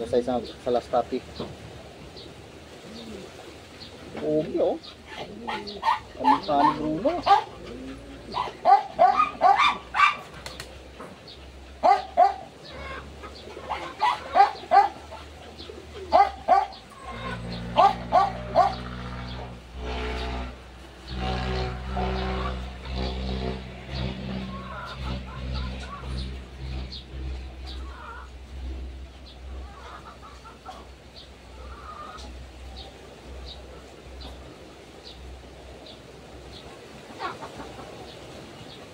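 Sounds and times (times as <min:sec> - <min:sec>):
chickens clucking: 0:00.0 - 0:19.6, 0:20.3 - 0:35.2, 0:35.8 - 0:38.9
puppy whining and yelping: 0:05.1 - 0:10.3
low pitched hum: 0:10.7 - 0:36.7.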